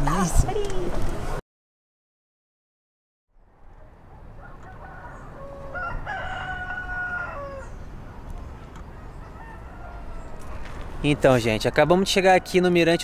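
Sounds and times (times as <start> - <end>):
rooster crowing: 4.3 - 7.9, 8.9 - 10.6, 11.7 - 13.0.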